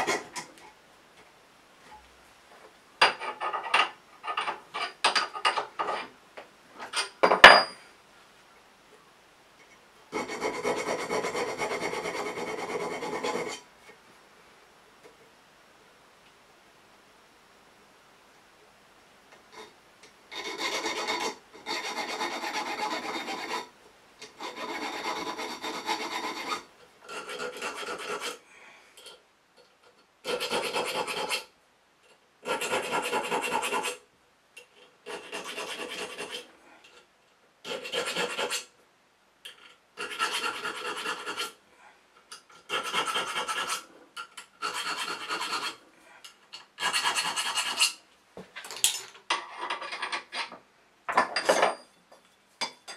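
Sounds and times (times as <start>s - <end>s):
file rasping on steel: 10.1s - 13.6s, 20.3s - 28.4s, 30.2s - 31.5s, 32.4s - 34.0s, 35.0s - 36.5s, 37.6s - 38.7s, 40.0s - 41.6s, 42.5s - 45.8s, 46.6s - 48.0s.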